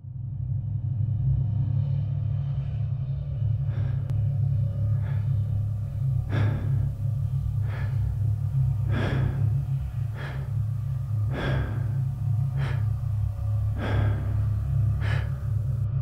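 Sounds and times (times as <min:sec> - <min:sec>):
low steady drone: 0:00.0 - 0:16.0
heavy rhythmic breathing: 0:03.4 - 0:16.0.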